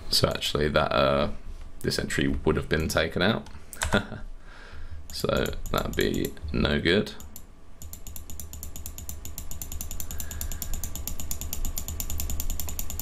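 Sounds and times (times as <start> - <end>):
steady low hum: 0.0 - 13.0
keyboard key clicking: 5.1 - 6.3, 7.2 - 13.0.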